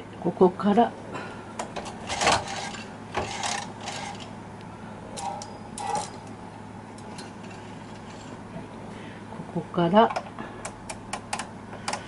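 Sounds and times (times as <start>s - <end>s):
knitting machine clicks and scrapes: 2.0s - 4.3s, 7.1s - 8.4s.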